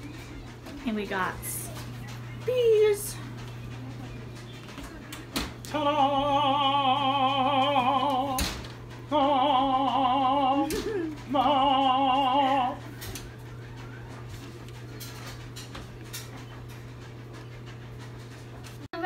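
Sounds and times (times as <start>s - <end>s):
person singing operatic notes: 9.1s - 12.8s.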